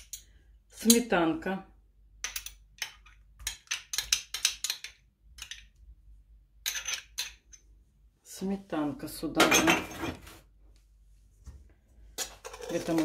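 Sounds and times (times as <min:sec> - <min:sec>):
metal spoon clinking and scraping: 0:00.0 - 0:01.0, 0:06.6 - 0:07.6, 0:12.2 - 0:13.0.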